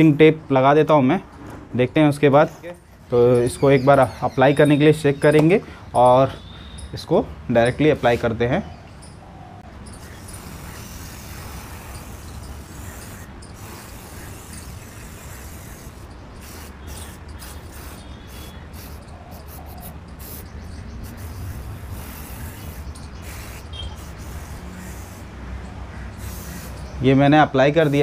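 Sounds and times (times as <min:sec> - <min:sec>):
aerosol can spraying: 0:10.0 - 0:25.3, 0:26.2 - 0:26.9, 0:27.8 - 0:28.0.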